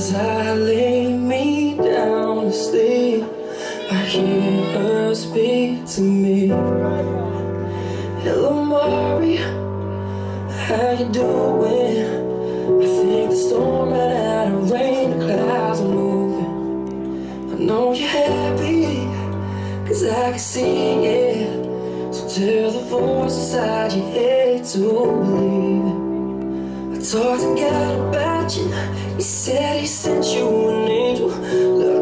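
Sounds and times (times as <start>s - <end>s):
woman singing: 0.0s - 7.2s
pop band with steady beat: 0.0s - 9.9s, 10.5s - 32.0s.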